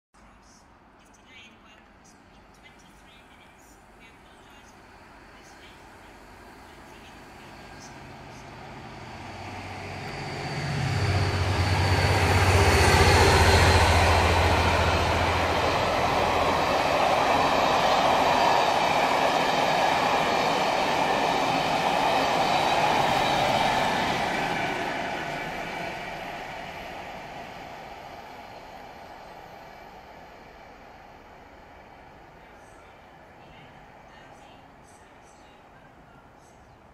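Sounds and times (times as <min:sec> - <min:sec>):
diesel locomotive engine drone: 0:02.6 - 0:36.9
train wheels rushing on rails: 0:06.1 - 0:32.8.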